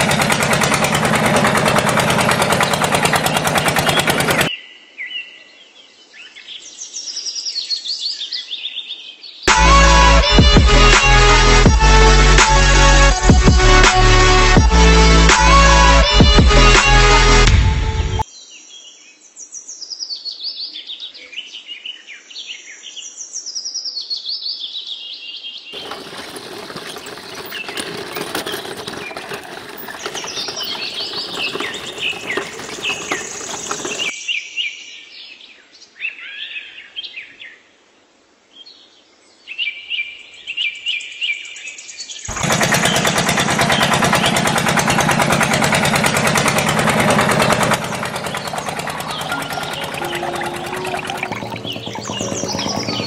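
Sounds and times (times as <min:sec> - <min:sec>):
small electric motor running: 0:00.0 - 0:04.5, 0:25.8 - 0:34.1, 0:42.3 - 0:53.0
birds chirping and singing: 0:02.2 - 0:04.5, 0:25.8 - 0:34.2, 0:41.8 - 0:53.0.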